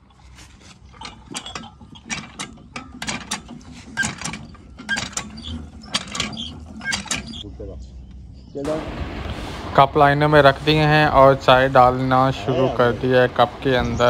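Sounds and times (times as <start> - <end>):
hand pump handle clanking and squeaking: 0.0 - 8.6.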